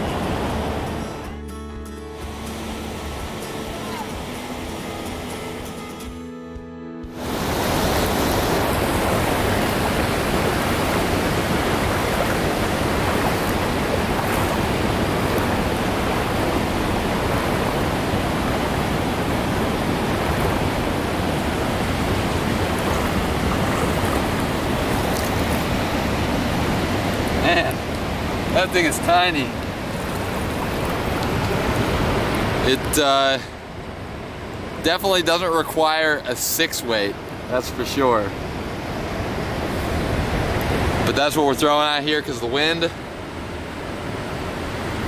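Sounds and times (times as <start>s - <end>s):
river rushing over rocks: 0.0s - 1.3s, 2.2s - 5.9s, 7.2s - 36.3s.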